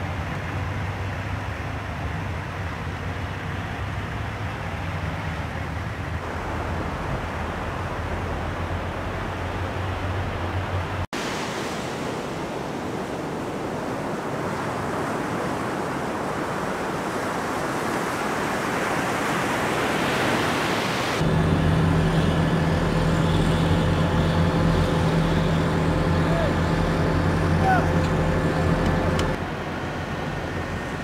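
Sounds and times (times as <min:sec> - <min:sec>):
surf breaking on sandy beach: 0:11.2 - 0:29.4
vehicle engine humming: 0:21.2 - 0:31.0.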